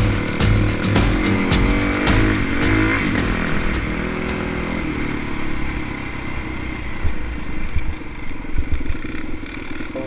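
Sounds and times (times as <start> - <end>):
low thumps from bumps: 0.0 - 4.7
dirt bike engine running: 0.0 - 10.0.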